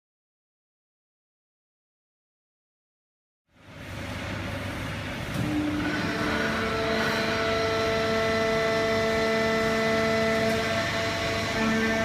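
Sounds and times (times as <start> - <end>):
baler machine drone with whining tones: 3.5 - 12.0.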